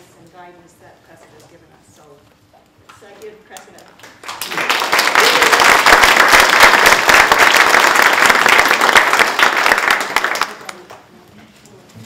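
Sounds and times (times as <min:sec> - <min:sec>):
audience applauding: 0:04.0 - 0:10.9.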